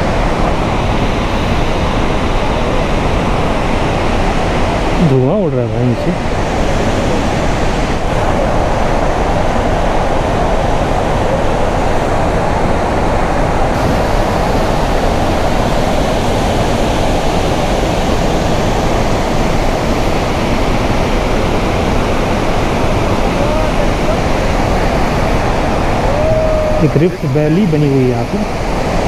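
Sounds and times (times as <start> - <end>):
waterfall rushing: 0.0 - 29.0.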